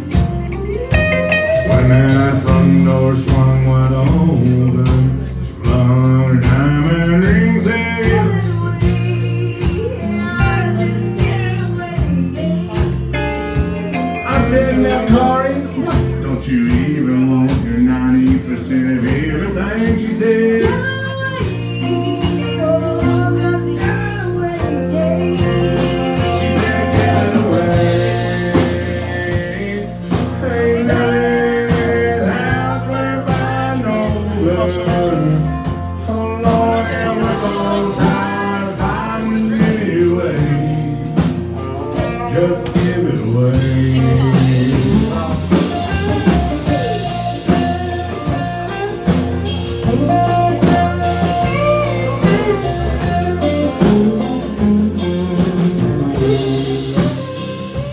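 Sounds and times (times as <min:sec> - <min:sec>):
country band playing: 0:00.0 - 0:57.9
man singing: 0:00.0 - 0:57.9
woman singing: 0:05.6 - 0:13.3, 0:14.0 - 0:41.2, 0:42.0 - 0:49.2.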